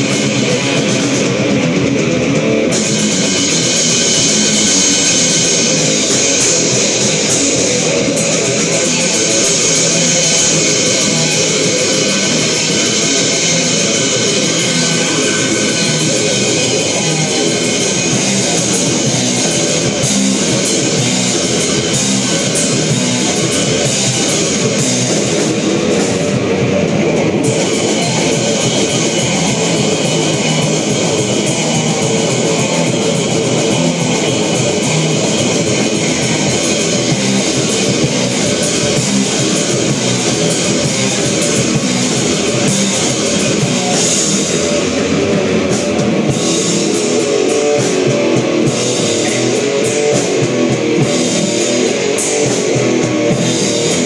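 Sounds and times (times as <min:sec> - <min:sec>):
metal band playing: 0:00.0 - 0:54.0.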